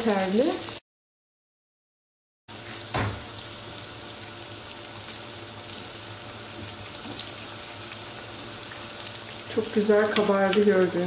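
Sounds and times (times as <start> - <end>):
dough sizzling in hot oil: 0.0 - 0.8, 2.5 - 11.0
short knock: 2.9 - 3.2.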